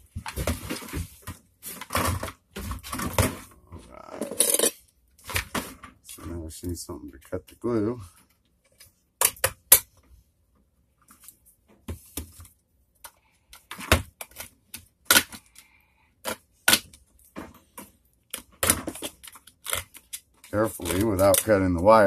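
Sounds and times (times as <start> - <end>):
hand tool prying plastic: 9.2 - 9.9, 13.0 - 15.6, 16.2 - 21.6.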